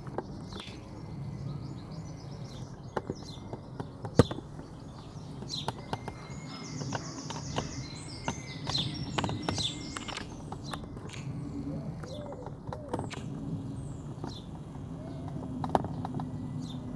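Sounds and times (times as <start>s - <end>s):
birds chirping and singing: 0.0s - 16.9s
sharp clicks: 6.8s - 11.4s, 12.0s - 13.4s.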